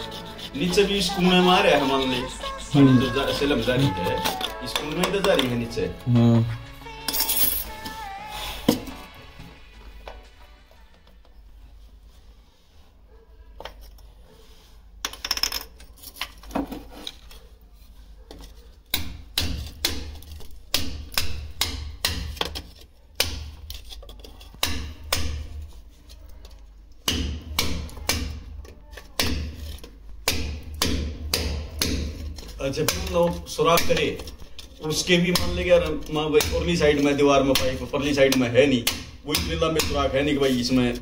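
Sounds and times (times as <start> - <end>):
hammer striking: 18.9 - 22.6, 27.0 - 28.5, 29.2 - 33.1, 35.3 - 40.5.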